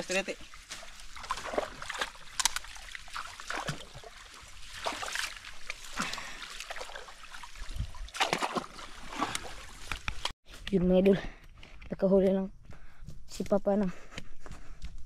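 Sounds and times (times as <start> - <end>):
pond water splashing: 0.0 - 10.4.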